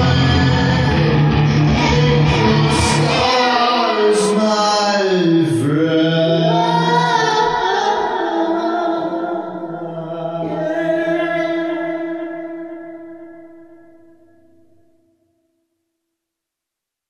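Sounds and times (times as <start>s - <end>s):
man singing: 0.0s - 13.2s.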